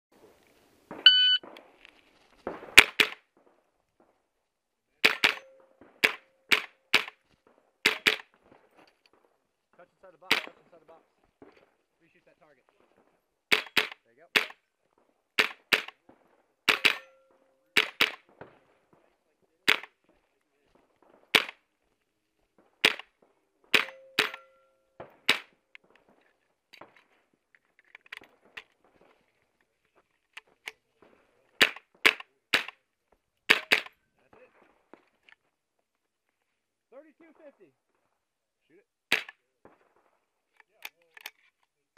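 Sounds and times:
shot timer beep: 0:01.0 - 0:01.4
rifle shots: 0:02.4 - 0:03.6, 0:05.0 - 0:09.3, 0:10.1 - 0:10.8, 0:12.7 - 0:20.0, 0:20.8 - 0:21.7, 0:22.7 - 0:26.2, 0:30.4 - 0:32.8, 0:33.5 - 0:34.9, 0:39.1 - 0:40.2.

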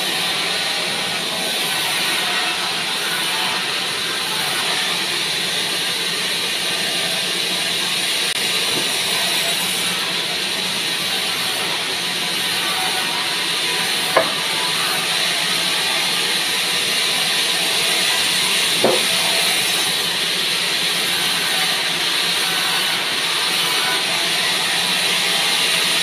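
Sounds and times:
band saw cutting log: 0:08.2 - 0:26.0
short knocks: 0:14.2 - 0:14.5, 0:18.8 - 0:19.2.

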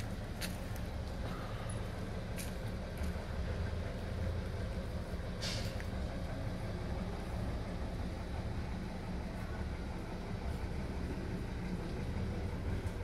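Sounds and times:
short hiss: 0:05.4 - 0:05.8.

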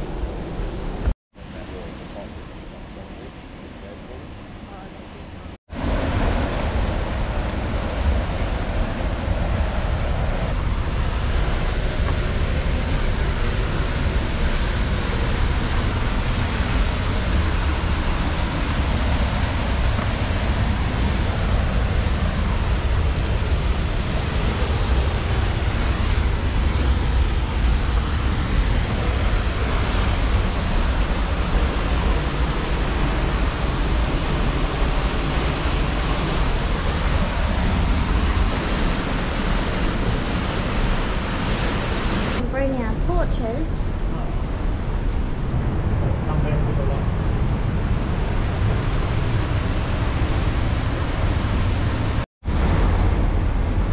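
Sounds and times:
waterfall rushing: 0:05.7 - 0:42.4.

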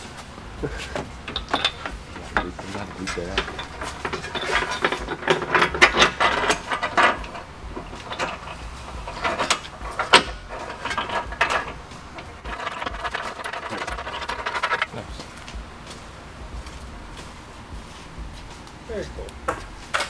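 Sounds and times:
rough steady noise: 0:00.0 - 0:20.0
metal clicks and knocks: 0:00.8 - 0:15.6.

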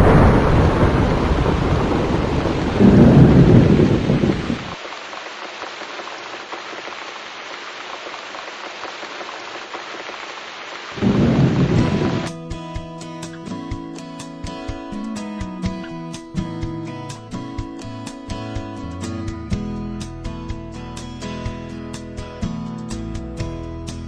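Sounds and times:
rolling thunder: 0:00.0 - 0:04.8, 0:11.0 - 0:12.3
steady rain: 0:00.0 - 0:12.4.

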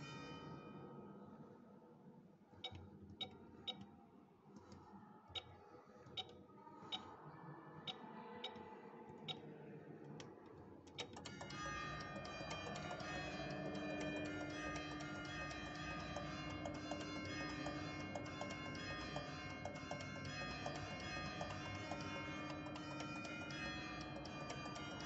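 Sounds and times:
control panel keys clicking: 0:10.9 - 0:25.0
church bells ringing: 0:11.5 - 0:25.0.

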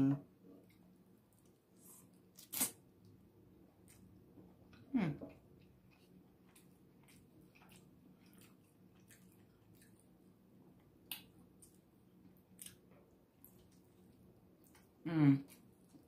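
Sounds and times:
chewing and mouth clicks: 0:04.7 - 0:16.0.

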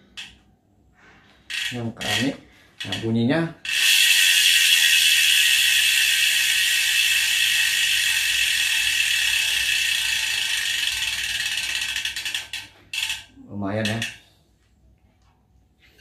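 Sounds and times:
bicycle freehub ratcheting: 0:00.0 - 0:00.4, 0:01.4 - 0:14.3.

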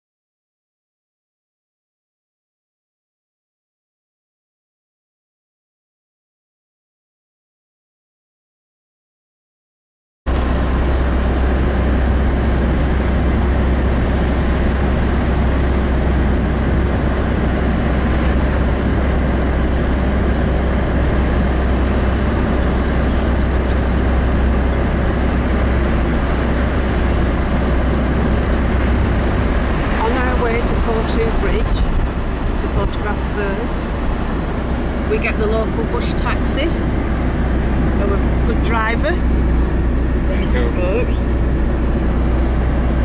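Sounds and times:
car interior driving rumble: 0:10.3 - 0:43.0.

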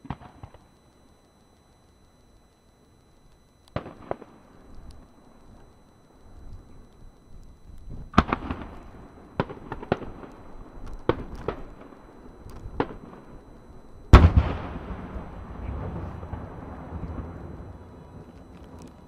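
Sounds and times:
rolling rumble: 0:03.8 - 0:19.0
firework shells bursting: 0:07.4 - 0:17.3
loud firework boom: 0:14.1 - 0:17.4.

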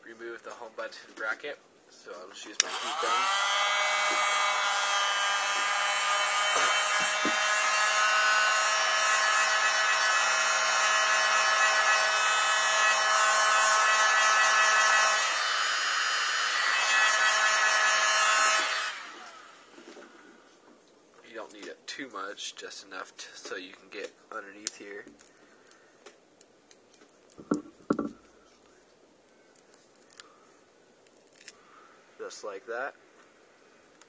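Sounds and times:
heat gun motor whine: 0:02.6 - 0:19.6.

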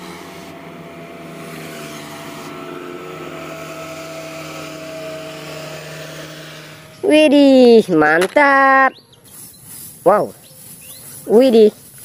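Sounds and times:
truck engine running: 0:00.0 - 0:07.9.

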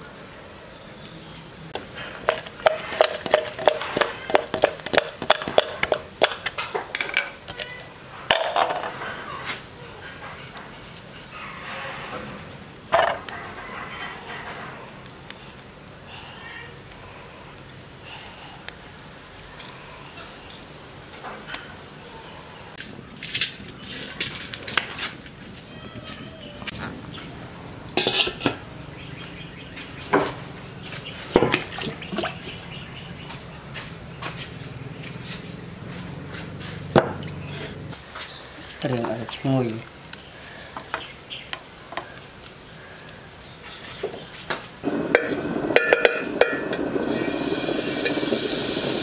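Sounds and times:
low background noise: 0:00.0 - 0:49.0
cooking gear clinking and scraping: 0:01.9 - 0:09.2.

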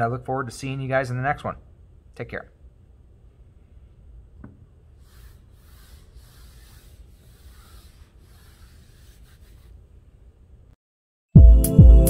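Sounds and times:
eraser rubbing on whiteboard: 0:05.0 - 0:09.8.

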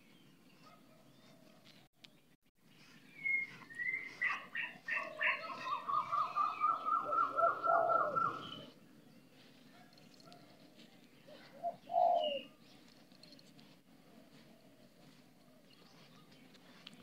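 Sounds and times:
bird calling: 0:02.7 - 0:08.8, 0:11.3 - 0:12.6.

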